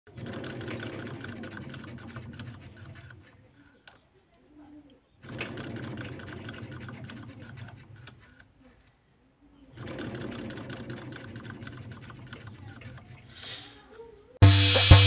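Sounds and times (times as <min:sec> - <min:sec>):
small motor rattling whir: 0:00.1 - 0:04.1, 0:05.1 - 0:09.0, 0:09.6 - 0:13.3.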